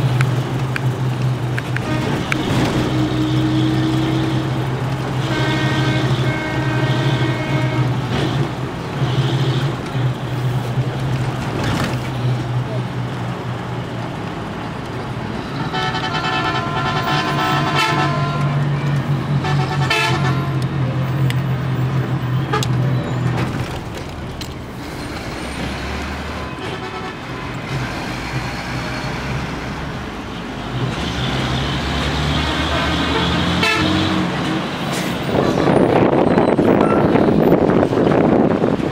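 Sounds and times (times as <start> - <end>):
bus engine hum: 0.0 - 38.9
road noise: 0.0 - 38.9
vehicle horn: 1.8 - 4.5, 5.2 - 9.8, 15.5 - 18.6, 19.4 - 20.7, 26.4 - 27.5, 32.4 - 34.3.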